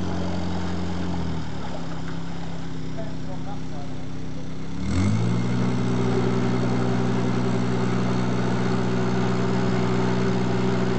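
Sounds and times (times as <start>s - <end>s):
water wash churning: 0.0s - 3.6s
boat engine running: 0.0s - 10.9s.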